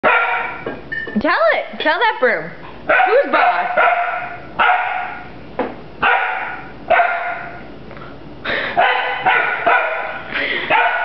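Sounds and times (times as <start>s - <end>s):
puppy barking: 0.0s - 0.7s, 2.9s - 5.3s, 6.0s - 7.7s, 8.8s - 11.0s.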